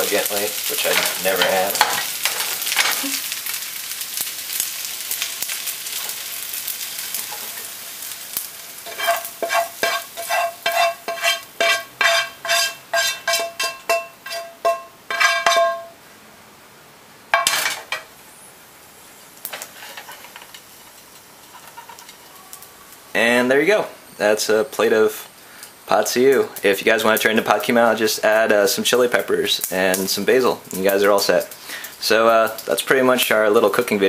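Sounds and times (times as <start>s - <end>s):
frying pan sizzling: 0.0s - 16.2s, 17.1s - 34.0s
spatula knocking on ringing pan: 8.9s - 16.0s.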